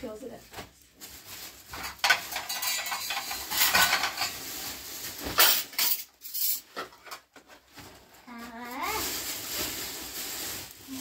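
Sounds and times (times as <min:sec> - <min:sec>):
dishes and utensils clattering: 0:01.7 - 0:04.6, 0:05.2 - 0:07.7.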